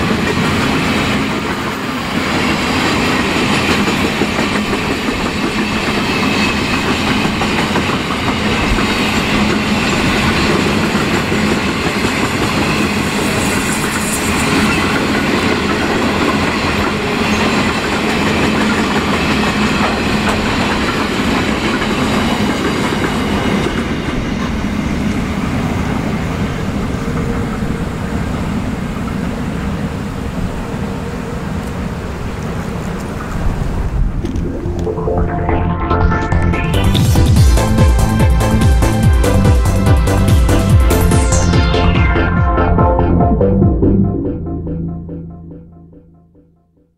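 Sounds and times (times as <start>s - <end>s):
wheels clacking over rail joints: 0.0s - 13.2s, 13.9s - 24.8s
train wagons rumbling: 0.0s - 45.1s.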